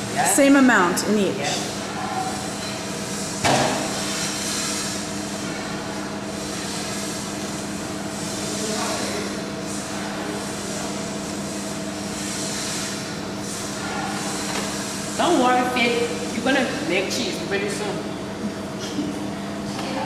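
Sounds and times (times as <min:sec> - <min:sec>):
machine hum and hiss: 0:00.0 - 0:20.0
sharp knock: 0:03.4 - 0:03.8.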